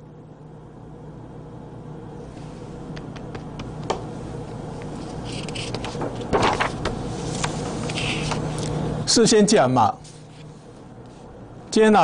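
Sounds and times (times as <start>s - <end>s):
steady low hum: 0.0s - 12.0s
paper rustling and tapping: 5.6s - 7.6s.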